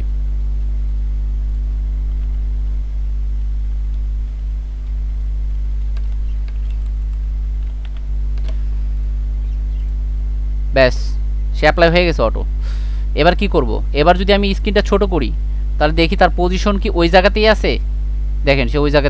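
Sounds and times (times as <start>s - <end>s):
electrical mains hum: 0.0s - 19.0s
keyboard clicks: 5.8s - 8.6s.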